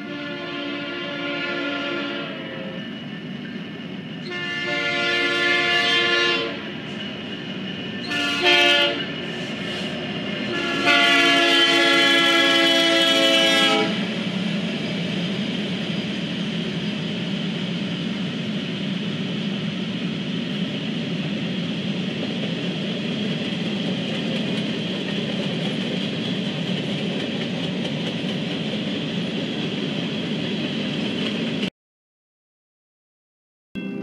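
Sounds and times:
train air horn: 0.0 - 2.8, 4.2 - 6.7, 8.0 - 14.1
freight train rumbling past: 0.0 - 31.7.

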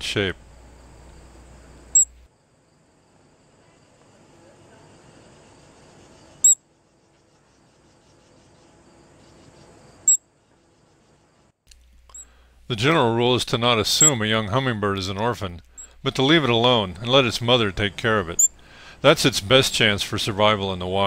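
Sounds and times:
faint insect trill: 0.0 - 12.5, 15.7 - 16.4, 17.5 - 20.8
hummingbird chips: 11.7 - 20.4.

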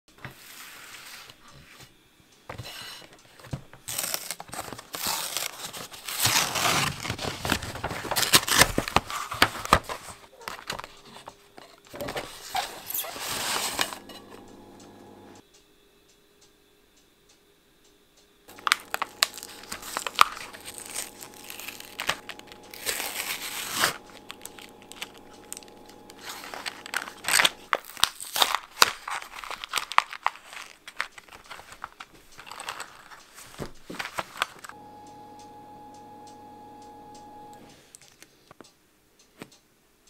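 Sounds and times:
plastic wrapper crinkling: 3.8 - 14.1, 18.5 - 34.7
low steady hum: 13.6 - 15.5, 18.5 - 27.8, 34.7 - 37.8.

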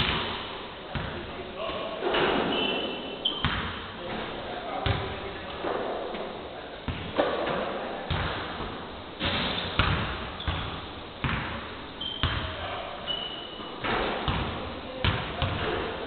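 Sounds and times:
shoe squeaks: 2.3 - 3.6, 9.5 - 9.8, 10.4 - 11.0, 12.0 - 13.8
basketballs bouncing on hardwood: 3.4 - 3.8, 4.8 - 5.2, 6.9 - 11.6, 12.2 - 12.6, 13.8 - 15.8.

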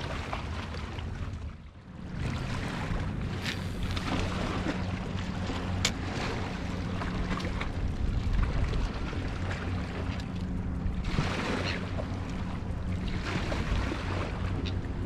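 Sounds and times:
motorboat engine drone: 0.0 - 15.0
wind buffeting microphone: 2.0 - 15.0.

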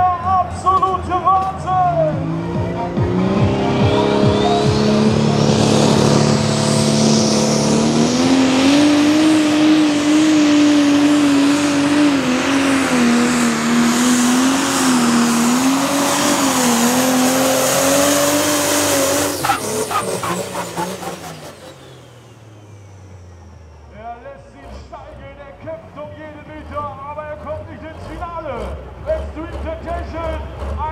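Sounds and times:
diesel engine at high revs: 0.0 - 30.9
engine cracks and pops: 29.0 - 30.9.

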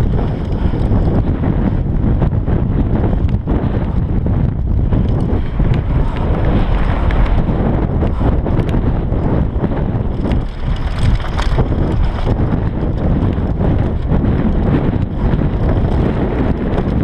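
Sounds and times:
bike rattling over bumps: 0.0 - 17.0
tyres rumbling on dirt: 0.0 - 17.0
wind buffeting microphone: 0.0 - 17.0.

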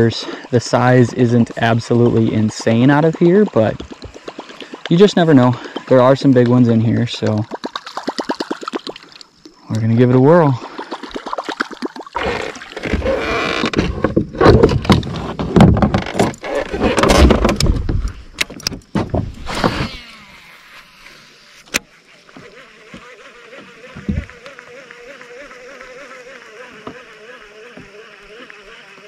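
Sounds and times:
fishing reel whirring: 19.4 - 21.9, 22.5 - 29.0.

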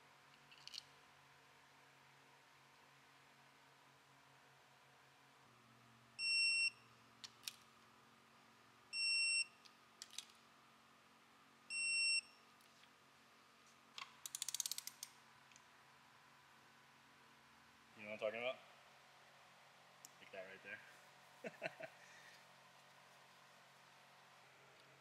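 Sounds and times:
ratchet clicks: 14.0 - 15.2.

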